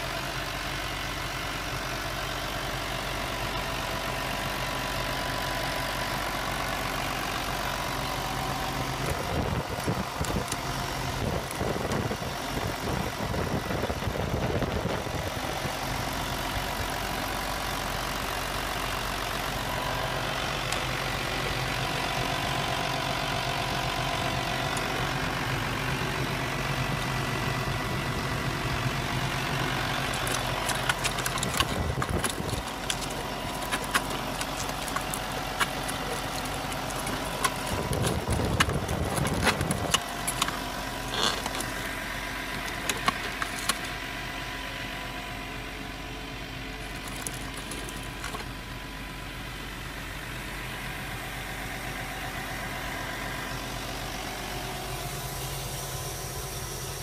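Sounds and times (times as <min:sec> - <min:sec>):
model excavator motors whining: 0:06.8 - 0:44.6, 0:46.4 - 0:49.3
gravel and stones clicking: 0:08.8 - 0:15.4, 0:29.4 - 0:44.1, 0:46.8 - 0:48.6
heavier low rumble: 0:26.0 - 0:42.8.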